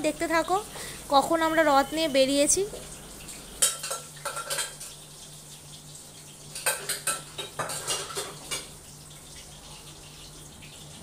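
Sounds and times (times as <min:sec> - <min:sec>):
utensils clattering on pots: 0:03.6 - 0:05.0, 0:06.5 - 0:08.8.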